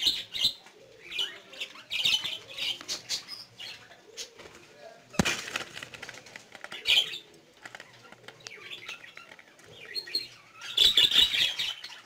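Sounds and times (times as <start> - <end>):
budgies chirping: 0.0 - 4.5, 6.1 - 12.0
budgies flapping wings: 5.2 - 10.2.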